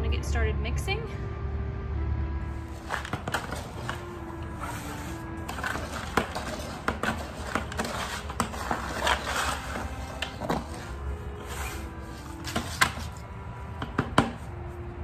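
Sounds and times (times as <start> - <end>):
background music: 0.0 - 15.0
tool stirring concrete in bucket: 2.8 - 13.1.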